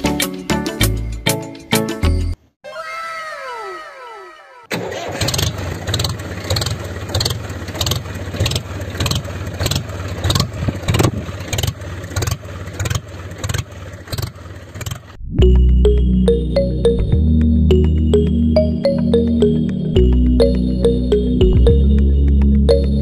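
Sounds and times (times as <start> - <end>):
small engine knocking: 4.8 - 15.2.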